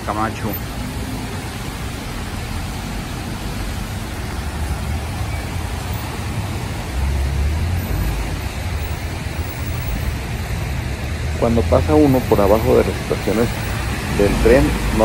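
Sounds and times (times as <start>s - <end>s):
rain hissing: 0.0s - 15.0s
rumble of passing vehicles: 0.0s - 15.0s
traffic on wet road: 0.0s - 15.0s.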